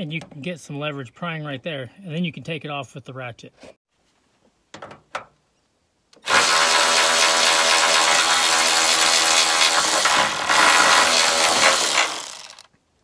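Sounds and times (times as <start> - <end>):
electric ratchet motor whine: 6.3 - 12.7.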